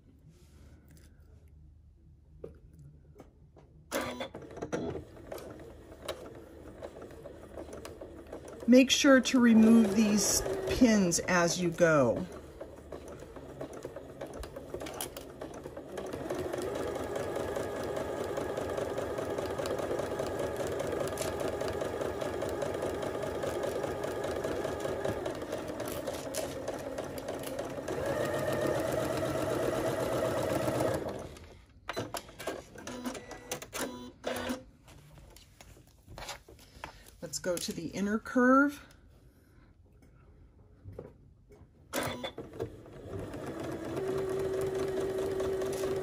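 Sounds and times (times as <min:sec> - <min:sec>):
sewing machine stitching: 0:03.9 - 0:34.6, 0:42.0 - 0:46.0.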